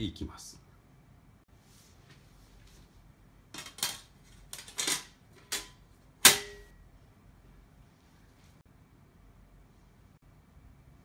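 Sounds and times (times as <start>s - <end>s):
loud metallic clank ringing: 6.2s - 6.8s.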